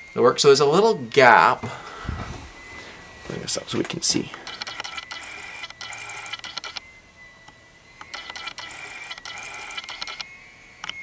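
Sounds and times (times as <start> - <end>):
autofocus motor whirring and clicking: 4.4 - 6.8, 8.0 - 11.0.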